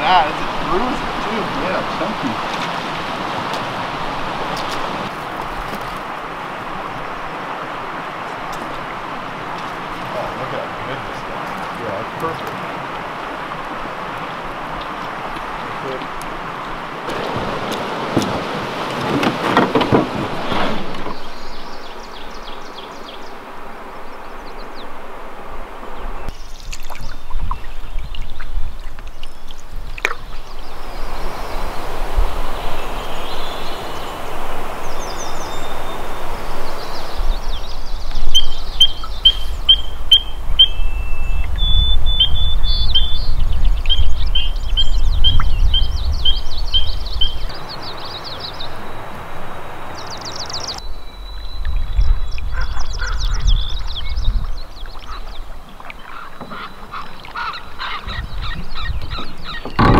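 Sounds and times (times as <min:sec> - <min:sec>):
low wind rumble: 0:00.0 - 0:59.9
rushing river water: 0:00.0 - 0:59.9
bird chirping: 0:20.8 - 0:23.4, 0:32.6 - 0:49.2, 0:49.8 - 0:59.9.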